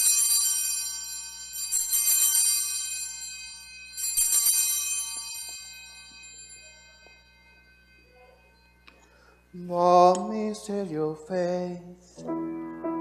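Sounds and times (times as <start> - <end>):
altar bells ringing: 0.0 - 13.0.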